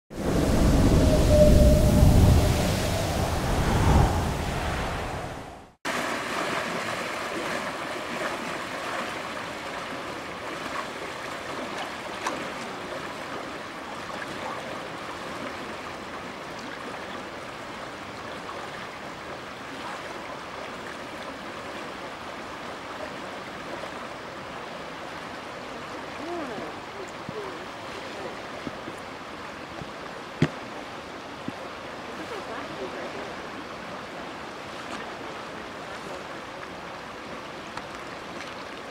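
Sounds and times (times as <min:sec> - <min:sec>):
floodwater rushing: 0:00.1 - 0:38.9.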